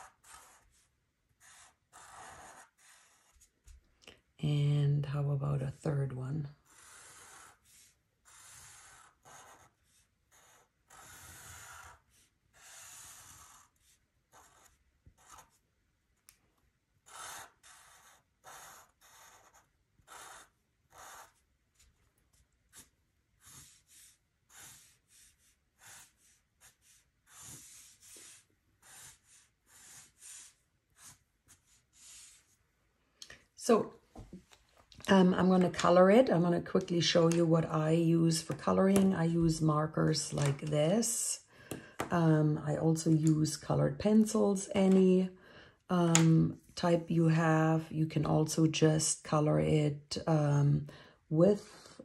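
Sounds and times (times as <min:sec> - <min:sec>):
marker scratching on paper: 0:00.0 - 0:03.8, 0:06.6 - 0:15.7, 0:17.0 - 0:32.6.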